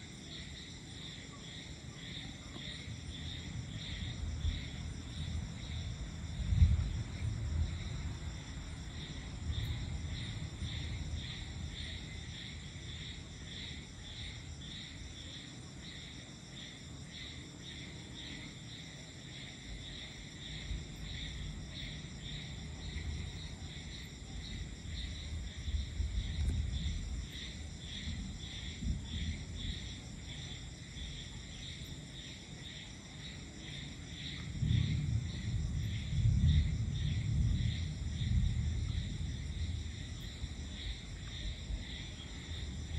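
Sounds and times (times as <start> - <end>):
night insects chirping: 0.0 - 42.9
distant thunder rumbling: 3.3 - 13.6, 20.4 - 30.1, 34.3 - 42.9.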